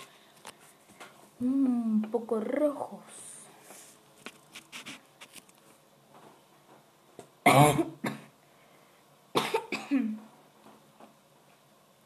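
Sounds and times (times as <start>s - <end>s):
boy coughing: 7.5s - 8.3s, 9.4s - 10.2s.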